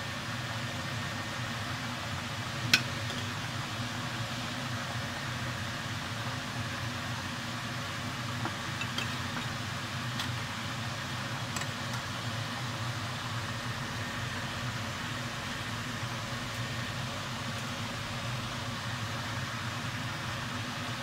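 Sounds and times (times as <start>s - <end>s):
metal spoon clinking on pot: 8.8s - 9.2s.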